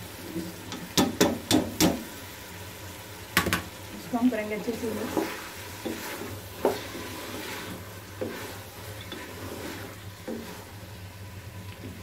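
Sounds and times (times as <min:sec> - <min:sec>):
lentils sizzling in oil: 0:00.0 - 0:12.0
wooden spoon scraping metal pot: 0:04.7 - 0:10.8.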